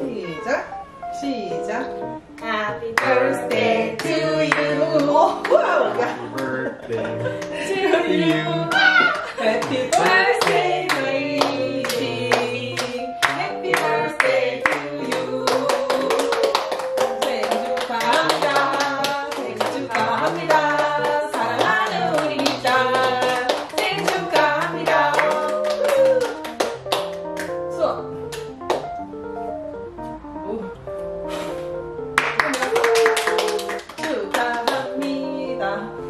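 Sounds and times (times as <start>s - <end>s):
group singing: 2.4s - 26.2s
people clapping along: 3.0s - 27.7s, 28.3s - 29.0s, 32.2s - 35.3s.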